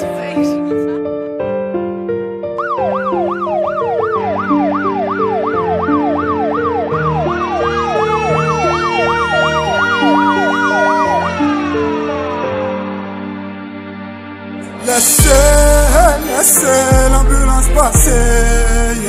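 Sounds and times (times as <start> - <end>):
keyboard melody: 0.0 - 19.0
siren yelping: 2.6 - 13.1
siren rising wail: 2.6 - 13.6.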